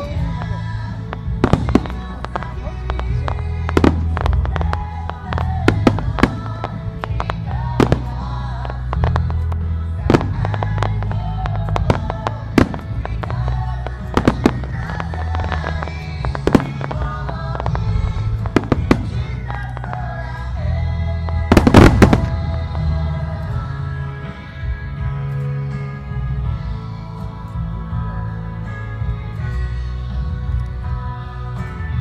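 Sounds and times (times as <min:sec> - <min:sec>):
fireworks bursting: 0:00.0 - 0:25.3
loud music with bass line: 0:00.0 - 0:32.0.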